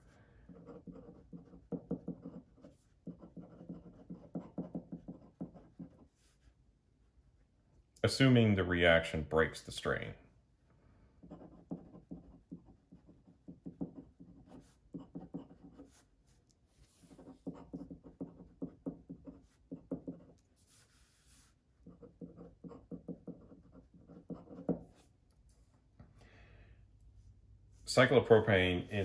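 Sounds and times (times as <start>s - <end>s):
pen scratching and tapping on paper: 0.4s - 6.1s, 11.2s - 20.9s, 21.8s - 25.7s.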